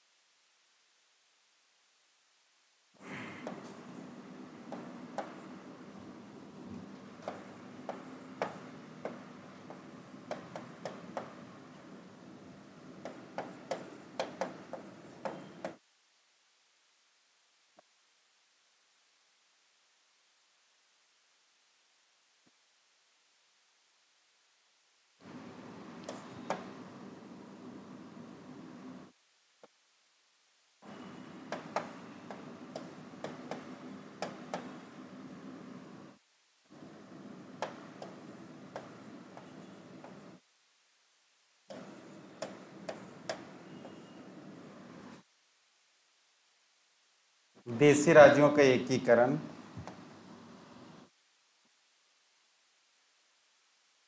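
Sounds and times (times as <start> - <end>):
steady room hum: 0.0 - 54.0
chalk tapping and stroking on board: 3.4 - 5.6, 6.8 - 11.4, 13.0 - 15.8, 26.0 - 26.7, 30.8 - 35.1, 37.6 - 40.4, 41.7 - 44.2.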